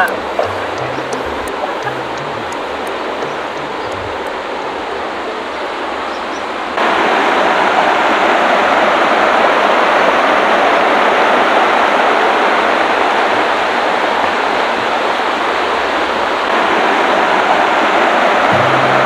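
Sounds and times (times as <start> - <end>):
water rushing over rocks: 0.0 - 19.0.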